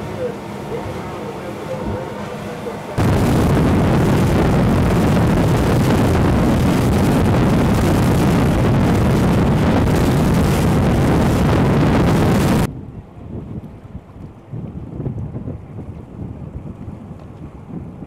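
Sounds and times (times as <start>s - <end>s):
water rushing: 0.0s - 12.7s
boat engine: 0.0s - 18.0s
wind buffeting microphone: 3.0s - 18.0s.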